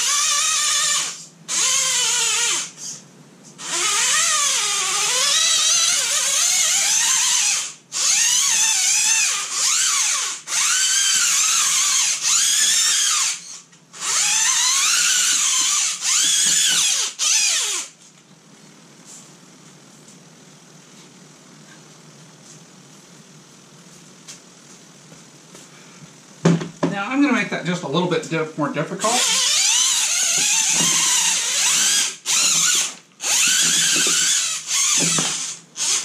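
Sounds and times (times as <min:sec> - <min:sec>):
electric motor whining: 0:29.2 - 0:36.0.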